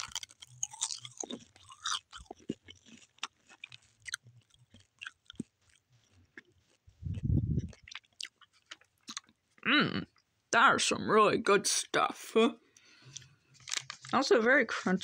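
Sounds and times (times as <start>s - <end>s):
person chewing crunchy snack: 0.0s - 10.2s.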